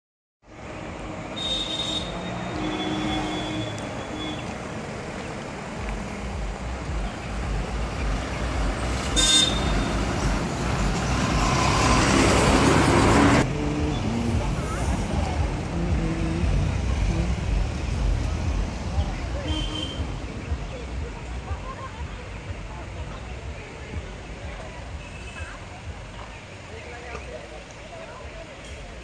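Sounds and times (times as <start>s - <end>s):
road traffic: 0.4s - 29.0s
vehicle horn tooting: 1.3s - 4.5s, 9.1s - 10.0s, 19.4s - 20.2s.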